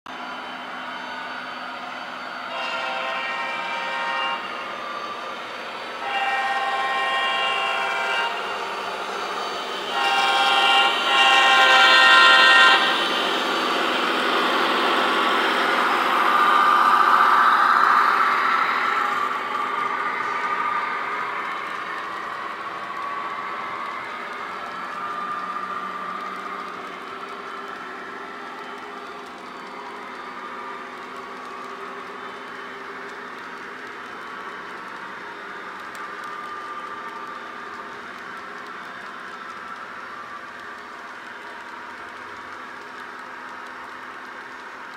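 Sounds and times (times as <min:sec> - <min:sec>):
train rolling on track: 0:00.1 - 0:44.9
model locomotive horn: 0:02.5 - 0:04.6, 0:06.0 - 0:08.6, 0:09.8 - 0:13.0.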